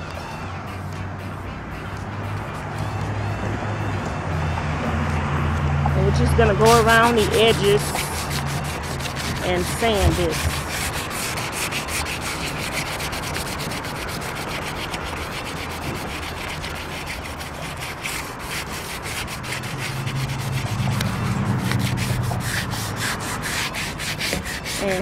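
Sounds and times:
sandpaper rubbing on metal: 6.5 - 25.0.

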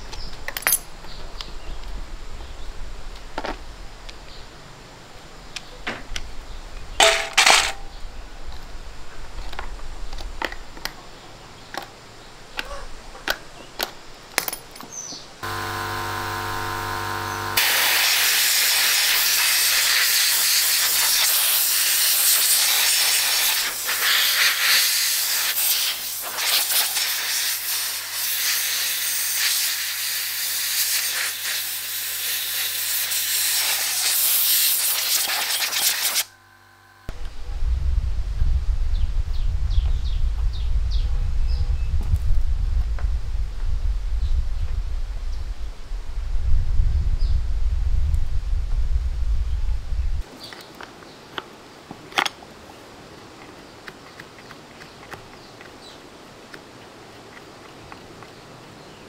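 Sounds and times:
metallic clicks of tools handled: 0.1 - 0.9
short buzz: 15.4 - 18.9
loud hiss of escaping air: 15.5 - 36.3.

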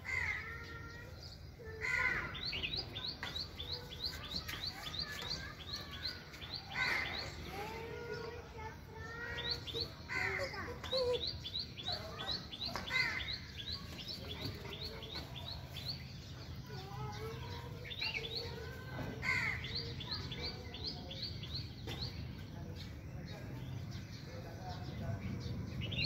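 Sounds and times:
harsh bird calls: 0.0 - 23.0.

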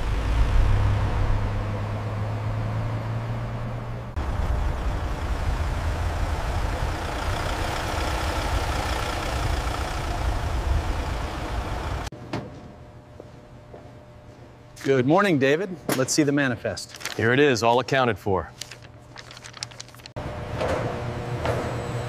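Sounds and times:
van engine running: 0.0 - 12.1.

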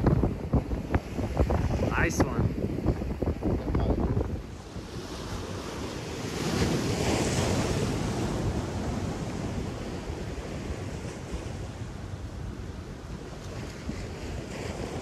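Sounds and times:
waves breaking over rocks: 0.0 - 15.0
wind buffeting microphone: 0.0 - 15.0.

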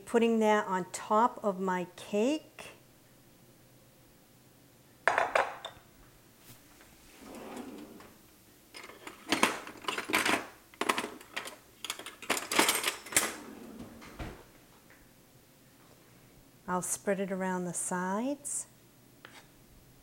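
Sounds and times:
drawer sliding open: 7.0 - 8.2, 12.2 - 14.5
metal utensils clattering: 8.7 - 13.7.

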